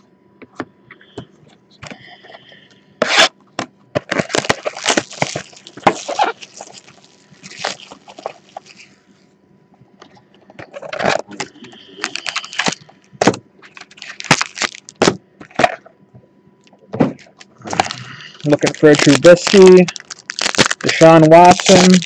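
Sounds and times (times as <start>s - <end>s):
plastic wrap crinkling: 4.0s - 9.0s, 12.0s - 12.9s, 13.6s - 15.7s, 17.2s - 22.0s.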